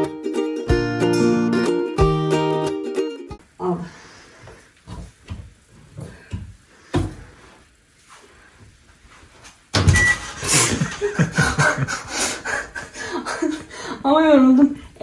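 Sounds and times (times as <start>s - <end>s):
person laughing and giggling: 10.4s - 13.9s.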